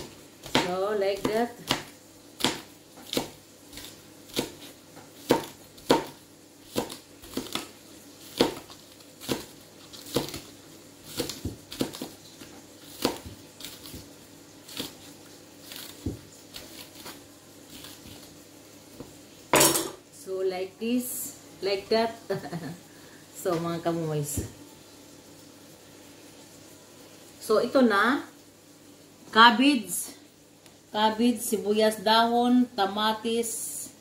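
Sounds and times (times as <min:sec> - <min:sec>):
knife chopping on cutting board: 0:00.0 - 0:10.5, 0:11.1 - 0:14.1, 0:15.7 - 0:17.2.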